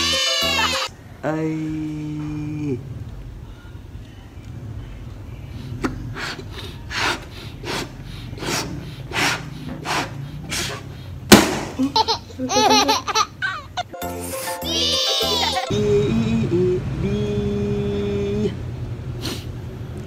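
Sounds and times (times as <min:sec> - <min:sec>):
man laughing: 0:00.2 - 0:00.9, 0:11.7 - 0:14.0, 0:15.0 - 0:16.1
breaths blowing up balloon: 0:05.7 - 0:11.4
balloon bursting bang: 0:11.3 - 0:11.8.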